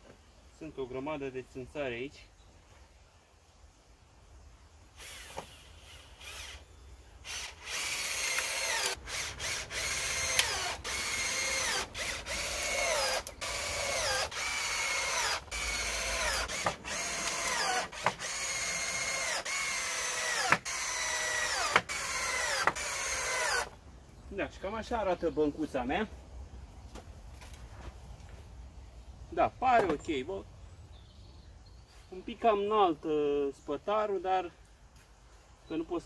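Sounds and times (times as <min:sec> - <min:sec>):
cordless drill bursts: 0:05.0 - 0:23.8.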